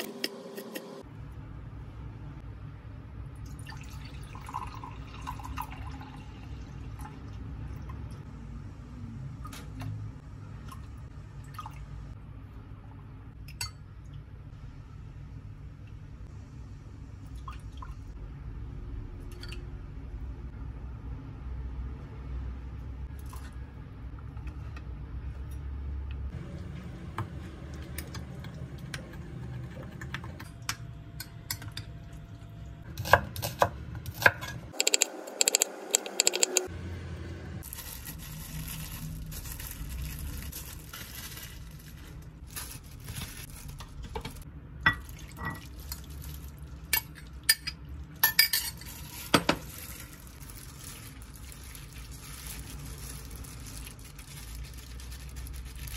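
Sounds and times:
spoon stirring in glass cup: 0:34.8 - 0:36.7.

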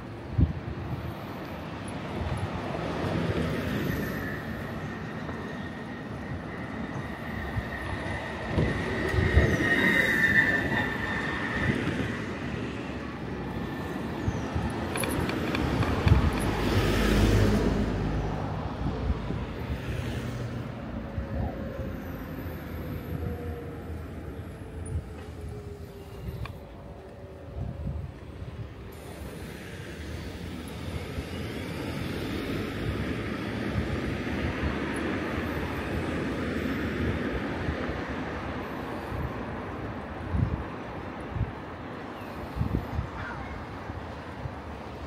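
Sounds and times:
passing vehicles: 0:00.0 - 0:45.0
high-pitched squeal: 0:03.4 - 0:15.2.

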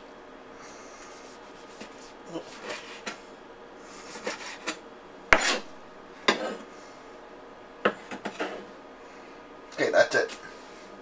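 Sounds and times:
knife cutting tomato on board: 0:05.4 - 0:05.7.

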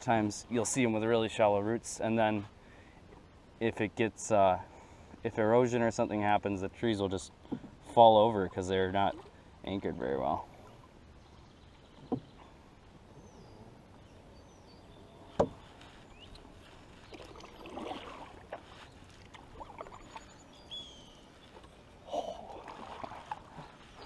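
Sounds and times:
paddles splashing in water: 0:15.0 - 0:24.0.

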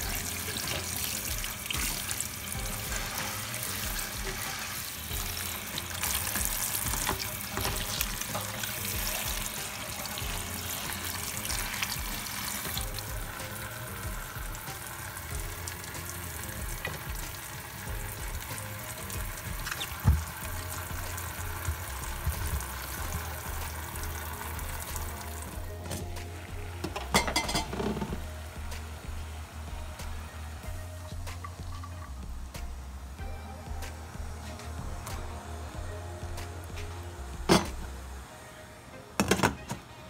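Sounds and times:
music with repeating bass line: 0:00.0 - 0:07.1, 0:10.2 - 0:12.2, 0:12.8 - 0:14.7, 0:15.3 - 0:17.3, 0:17.9 - 0:38.2
hissing kitchen sound: 0:00.0 - 0:40.0.

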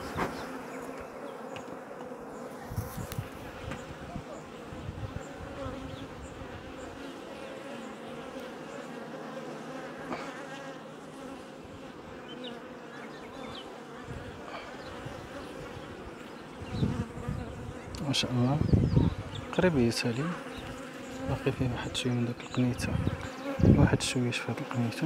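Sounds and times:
honeybees buzzing: 0:00.0 - 0:25.0.

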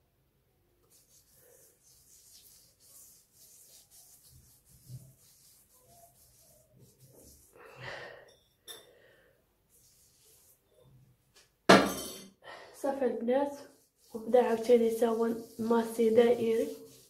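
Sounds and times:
fingertips rubbing scrub on skin: 0:00.9 - 0:07.6, 0:09.7 - 0:10.7, 0:13.6 - 0:17.0.

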